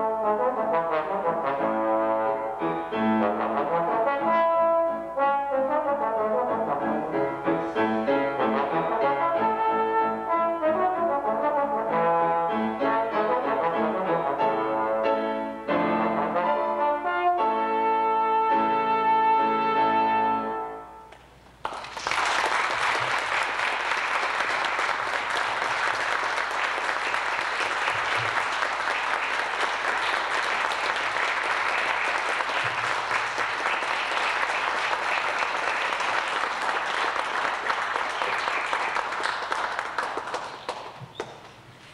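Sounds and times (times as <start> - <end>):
trombone and piano chord: 0.0 - 21.1
audience applauding: 21.6 - 41.6.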